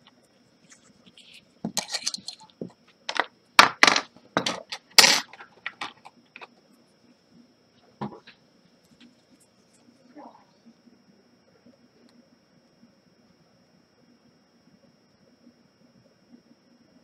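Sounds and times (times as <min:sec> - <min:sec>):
tools clicking and clinking: 0:01.8 - 0:02.5.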